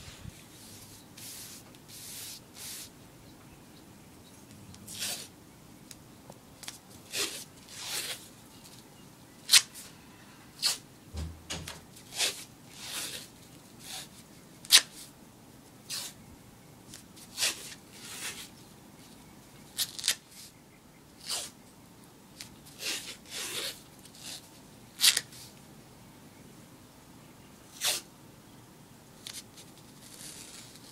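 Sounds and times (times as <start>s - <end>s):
athletic tape ripping: 4.9s - 5.3s, 6.6s - 8.3s, 9.5s - 9.8s, 19.8s - 20.3s, 25.0s - 25.4s.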